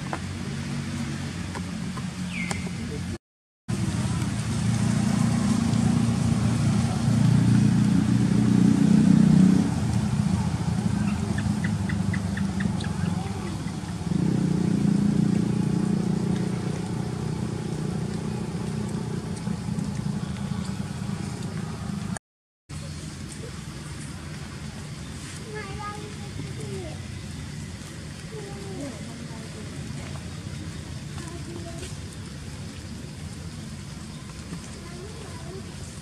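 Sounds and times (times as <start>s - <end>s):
low motor drone: 3.7s - 22.2s.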